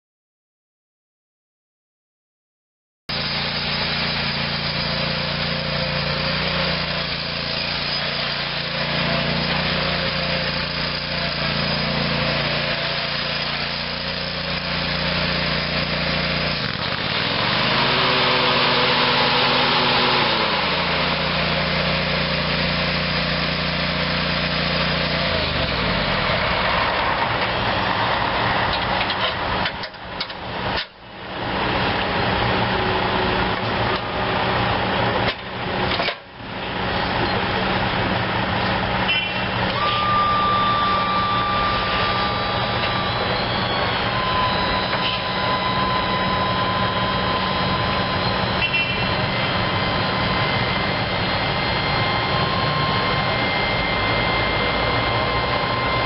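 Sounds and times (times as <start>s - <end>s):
mower engine running: 3.1s - 56.0s
thin high whine: 39.0s - 56.0s.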